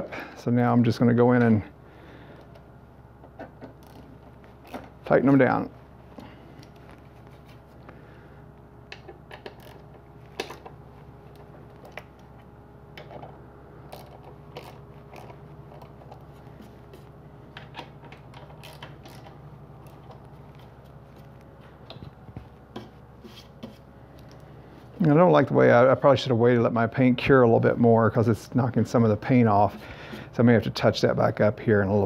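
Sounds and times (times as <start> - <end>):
steady low hum: 0.0 - 32.0
ratchet clicking: 9.4 - 9.8.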